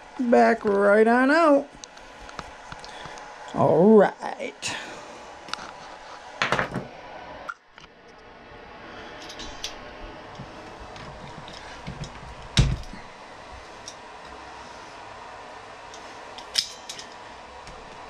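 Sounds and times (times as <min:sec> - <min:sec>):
hand tools handling: 0:16.4 - 0:17.2.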